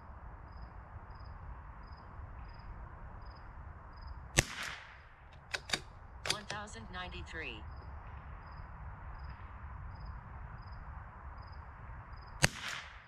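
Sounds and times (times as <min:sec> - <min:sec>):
gunshot echo: 0:04.4 - 0:05.0, 0:12.4 - 0:13.0
rifle shot crack: 0:04.4 - 0:06.5, 0:12.4 - 0:13.0.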